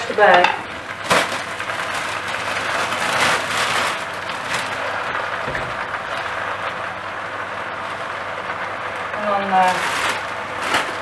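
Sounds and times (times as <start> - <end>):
plastic bag crinkling: 1.0 - 6.7, 9.2 - 11.0
spinach sizzling in a wok: 6.3 - 11.0.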